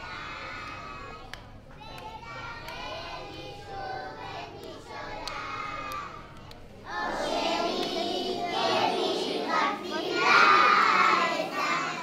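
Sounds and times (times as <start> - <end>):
children's voices: 0.0 - 12.0
children singing together: 1.9 - 6.2, 6.8 - 12.0.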